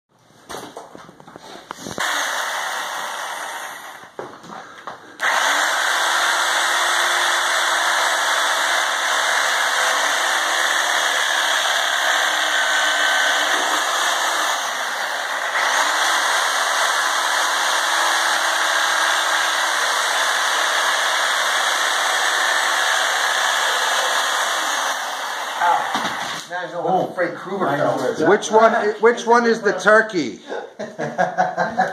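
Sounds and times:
reciprocating saw cutting meat: 0:05.2 - 0:26.5.

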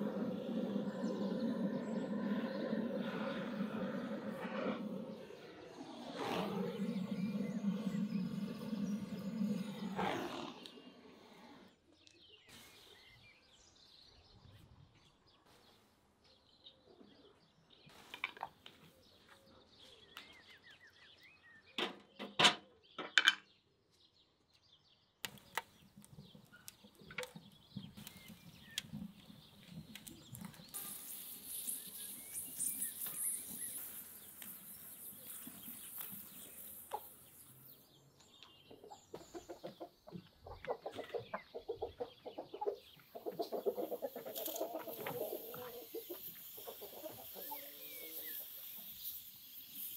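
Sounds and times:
chickens clucking: 0:00.0 - 0:10.5, 0:38.5 - 0:48.9.

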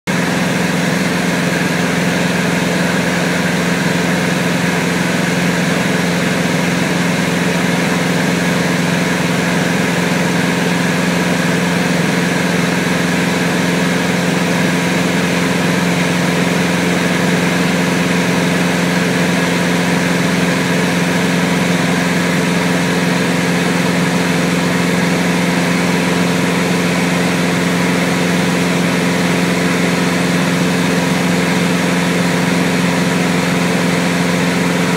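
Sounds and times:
aircraft engine droning: 0:00.1 - 0:34.9.

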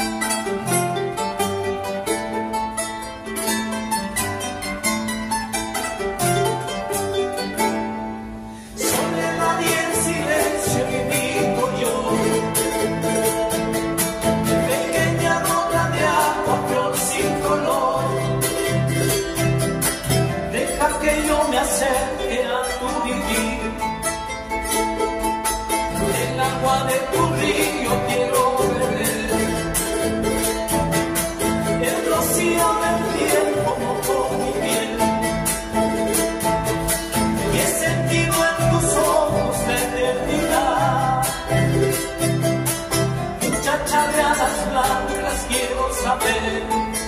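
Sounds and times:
charango strummed and plucked: 0:00.0 - 0:47.0
men singing together: 0:08.8 - 0:13.1, 0:14.5 - 0:18.9, 0:20.5 - 0:23.9, 0:26.0 - 0:29.8, 0:31.7 - 0:35.5, 0:37.4 - 0:41.9, 0:43.4 - 0:47.0.

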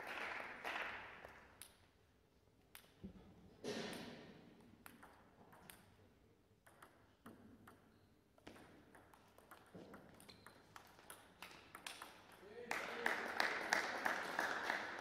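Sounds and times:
table tennis ball clicks: 0:04.8 - 0:06.0, 0:06.6 - 0:12.4.

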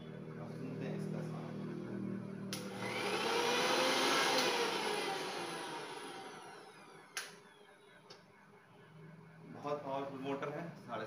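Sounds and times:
mixer grinder motor whirring: 0:01.2 - 0:08.6.

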